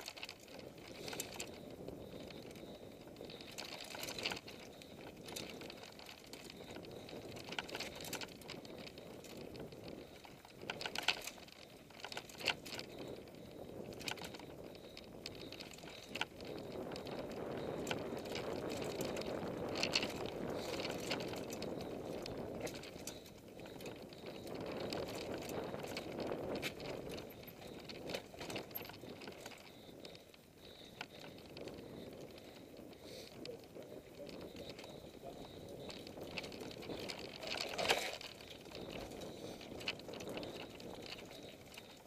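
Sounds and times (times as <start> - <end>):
bike clicking and rattling: 0.0 - 42.0
bike tyres on dirt: 0.0 - 42.0.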